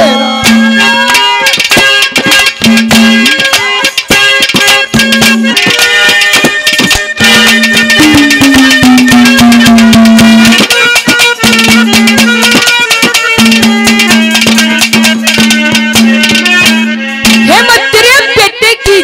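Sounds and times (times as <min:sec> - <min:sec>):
rapid hand-drum strokes: 0:00.0 - 0:18.1
long held melody note: 0:07.2 - 0:10.7.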